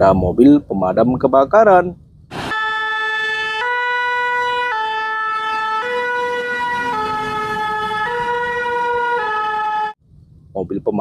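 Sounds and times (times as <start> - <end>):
two-tone fire engine siren: 2.3 - 10.0.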